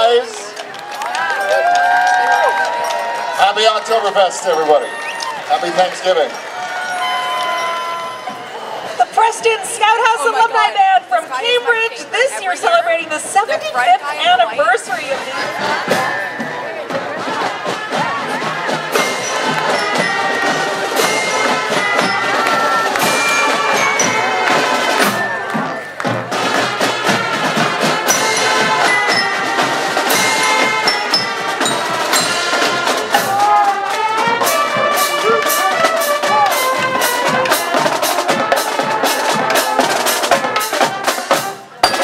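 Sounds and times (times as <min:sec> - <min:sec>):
brass playing a tune: 0:06.8 - 0:09.8, 0:17.2 - 0:42.0
snare drums: 0:14.8 - 0:42.0.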